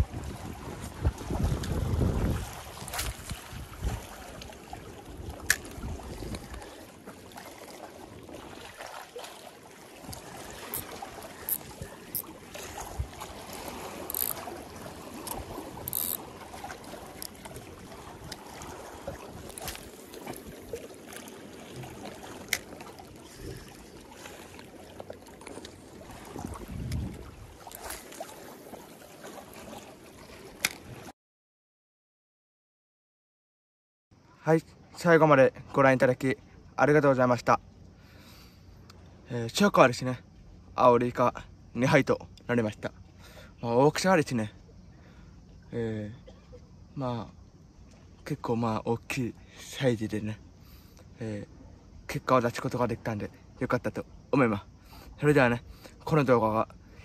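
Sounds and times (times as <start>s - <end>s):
wind buffeting microphone: 0.0s - 4.4s, 26.1s - 27.6s
sea water lapping against blocks: 0.0s - 31.1s.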